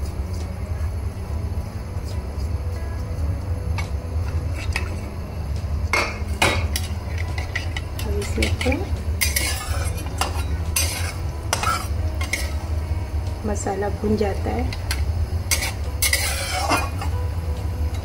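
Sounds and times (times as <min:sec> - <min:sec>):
steady low hum: 0:00.0 - 0:18.0
metal spatula scraping a metal pan: 0:06.0 - 0:12.8, 0:14.7 - 0:17.2.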